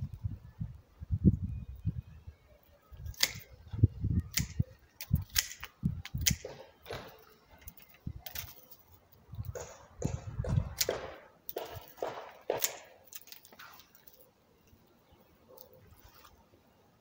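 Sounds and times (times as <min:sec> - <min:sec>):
pruning shears snipping branches: 0:03.0 - 0:03.6, 0:04.2 - 0:14.3.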